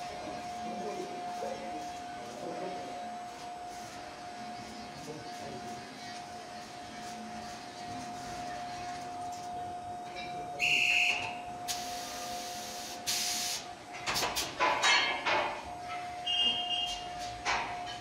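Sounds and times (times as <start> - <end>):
steady machinery hum: 0.0 - 18.0
shrill air hiss: 10.6 - 13.7
metal clanks and rattles: 13.9 - 16.1, 17.3 - 18.0
short machine squeal: 16.3 - 17.1.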